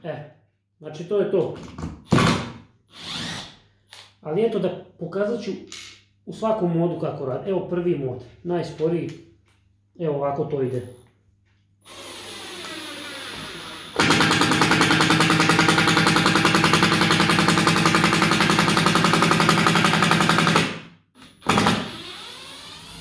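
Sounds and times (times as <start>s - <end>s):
impact driver hammering: 13.9s - 22.0s.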